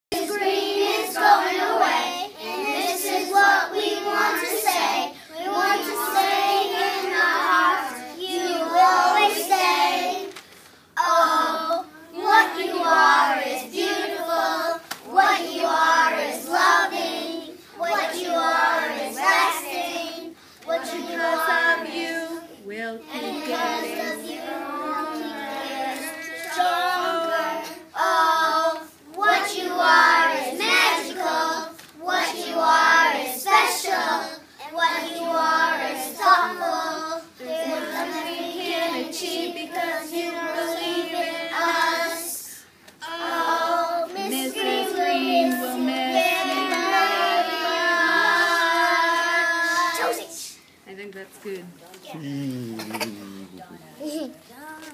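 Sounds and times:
young children singing: 0.1 - 50.6.

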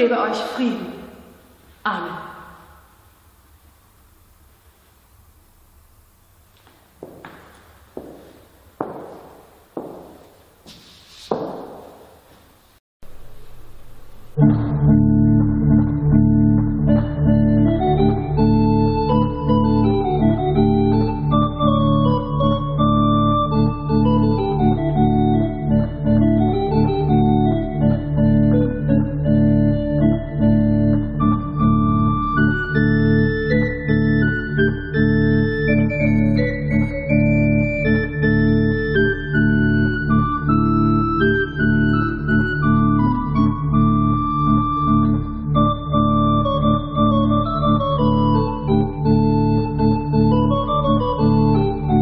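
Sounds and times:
church organ playing: 14.4 - 52.0.

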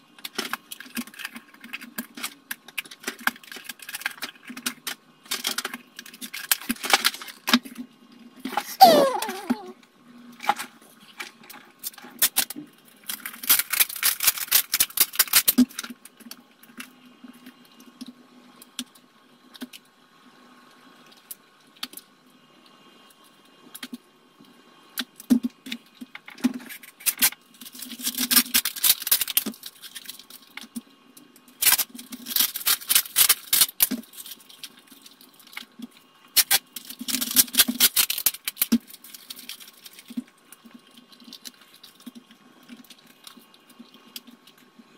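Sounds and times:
plastic cups and paper rustling: 0.2 - 9.8, 10.4 - 16.9, 31.5 - 44.8.

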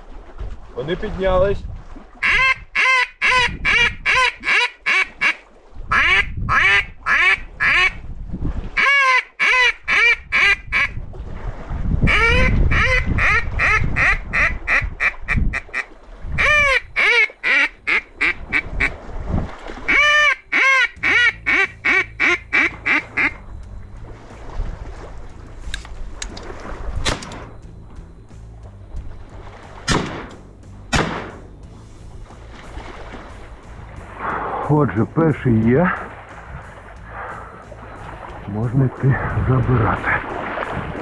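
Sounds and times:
duck call quacks: 2.2 - 8.0, 8.8 - 11.0, 12.1 - 19.0, 19.9 - 23.4.

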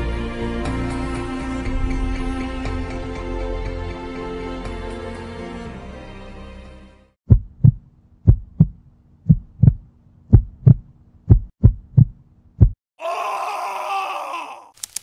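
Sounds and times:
heartbeat thumps: 7.3 - 12.8.

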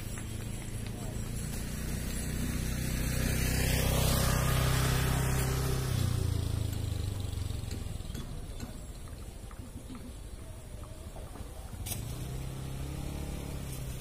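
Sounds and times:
vehicle engine passing by: 0.0 - 8.6, 11.6 - 14.0.

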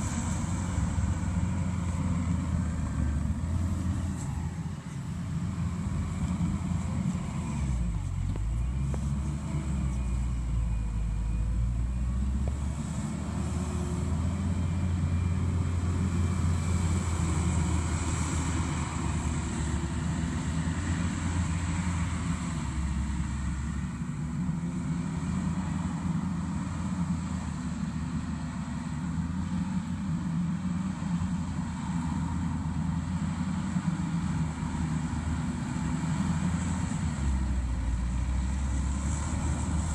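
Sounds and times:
diesel engine under load: 0.0 - 39.9.

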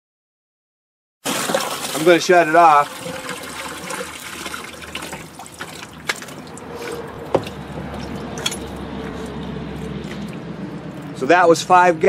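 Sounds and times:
water pouring into a bucket: 1.2 - 7.2
water trickling and dripping: 1.4 - 11.2
sharp knocks: 7.3 - 8.8.

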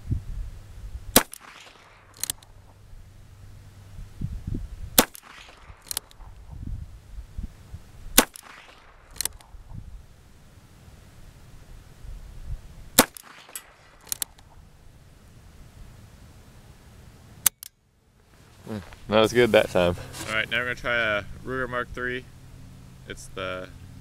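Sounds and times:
revolver shots: 1.1 - 2.6, 5.0 - 6.4, 8.2 - 9.5, 13.0 - 14.4
faint echo crack: 1.2 - 2.6, 5.0 - 6.4, 8.2 - 9.5, 13.0 - 14.5.

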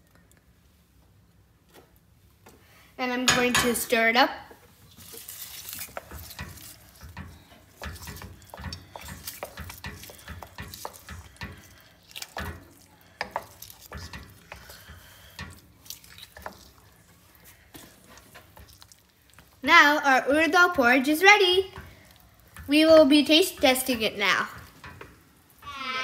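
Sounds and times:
spatula scraping pot: 4.8 - 19.6.

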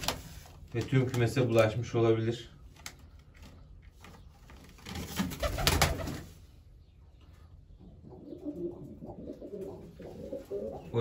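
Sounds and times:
pigeon wings flapping: 4.6 - 6.3
pigeons cooing: 7.7 - 11.0.

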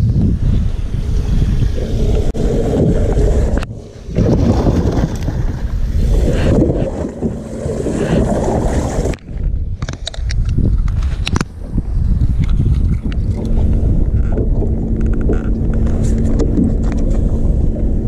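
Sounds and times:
muffled rumbling of microphone rubbing: 0.0 - 18.0.

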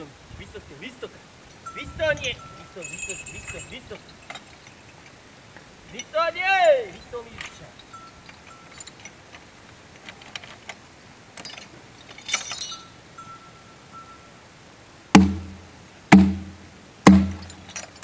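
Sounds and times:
harness chain jingling: 0.0 - 14.5, 17.2 - 18.0
heavy ringing knocks: 15.2 - 18.0.

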